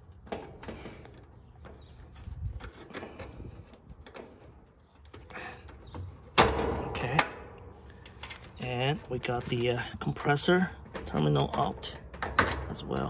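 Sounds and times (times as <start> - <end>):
connector scraping rattle: 0.0 - 13.0.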